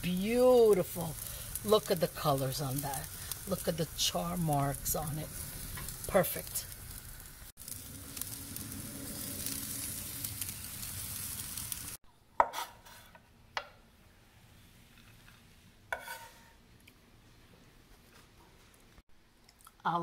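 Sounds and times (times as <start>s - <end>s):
vegetables sizzling on a grill: 0.0s - 13.2s, 14.6s - 16.6s.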